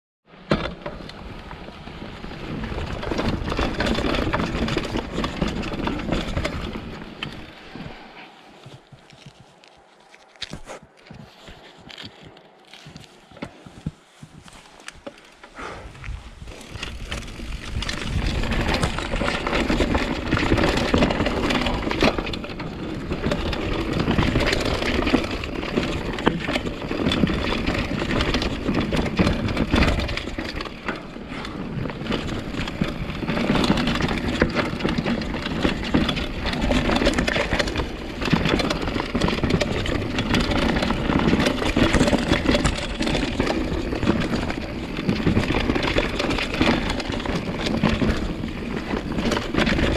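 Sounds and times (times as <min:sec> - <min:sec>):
bike rattling and knocking: 0:00.3 - 0:49.9
tyres crunching over dirt: 0:00.4 - 0:49.9.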